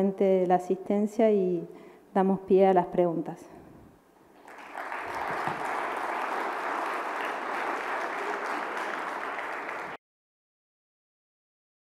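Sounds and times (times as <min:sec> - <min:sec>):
audience applauding: 0:04.4 - 0:10.0.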